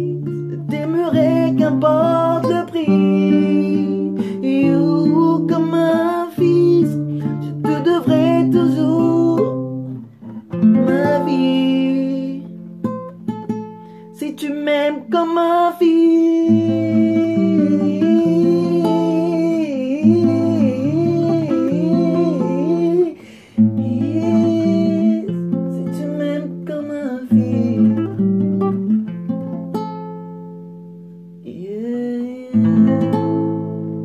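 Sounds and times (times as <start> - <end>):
classical guitar chords: 0.0 - 34.0
man humming wordlessly: 16.1 - 25.4.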